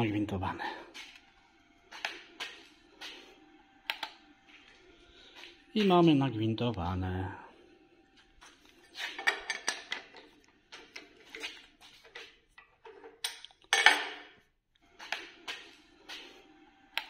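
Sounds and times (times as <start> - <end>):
metal tools clinking on steel: 9.0 - 10.3, 12.9 - 14.3.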